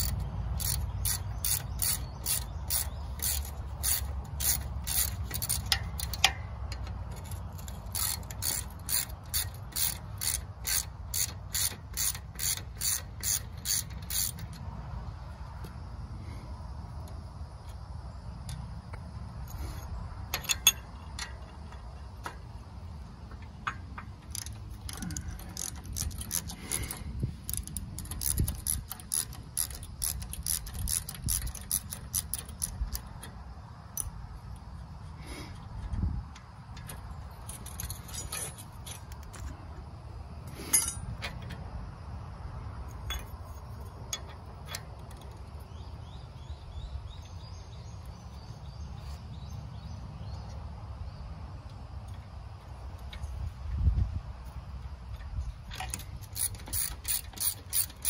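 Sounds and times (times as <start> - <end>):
small metallic clicks and clinks: 0.0 - 14.7, 18.4 - 22.6, 23.3 - 34.9, 35.5 - 39.6, 40.4 - 41.7, 42.8 - 49.4, 55.0 - 58.0.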